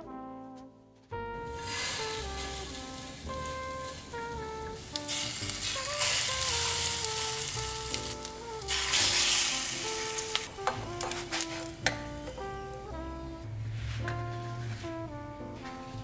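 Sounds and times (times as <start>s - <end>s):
food sizzling in a frying pan: 5.0s - 10.5s.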